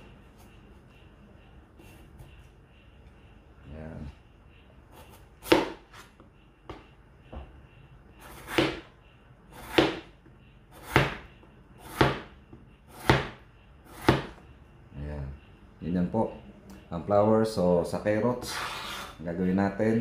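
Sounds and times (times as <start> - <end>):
knife slicing potato: 8.2 - 8.9, 9.5 - 10.1, 10.7 - 12.3, 12.9 - 14.4.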